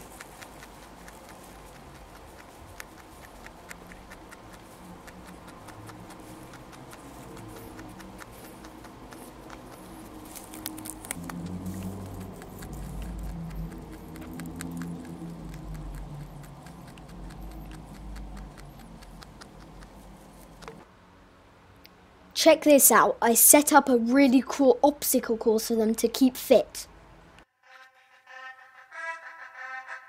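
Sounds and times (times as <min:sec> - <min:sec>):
rabbit chewing hay: 0:00.0 - 0:20.9
low rumble: 0:09.2 - 0:20.8.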